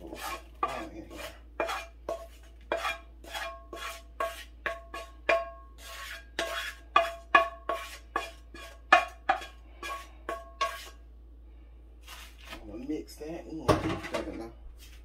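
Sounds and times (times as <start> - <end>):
wooden spatula knocking on pan: 0.2 - 10.9.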